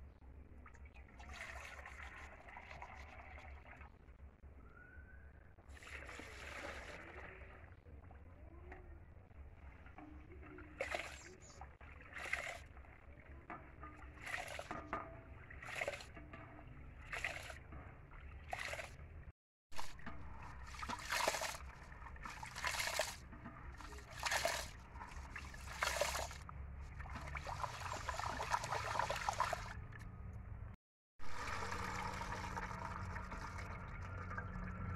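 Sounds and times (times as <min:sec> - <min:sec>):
hands washing rice in water: 0:09.6 - 0:19.2, 0:19.8 - 0:29.8.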